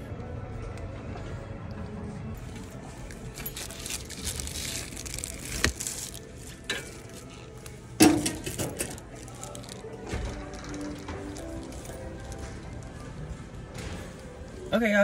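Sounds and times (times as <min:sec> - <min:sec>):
plastic mailer rustling: 0:02.4 - 0:13.3
metal locker door shutting: 0:08.0 - 0:09.0.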